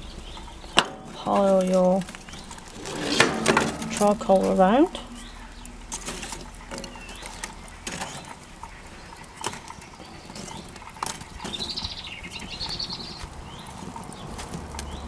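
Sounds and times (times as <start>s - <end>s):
charcoal lumps clinking: 0.0s - 11.8s.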